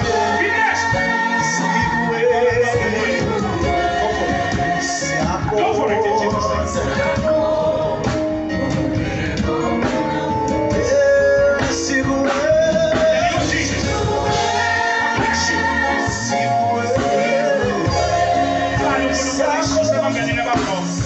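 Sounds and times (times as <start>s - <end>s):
band with guitar keyboard and bass: 0.0s - 21.0s
voices singing: 0.0s - 21.0s.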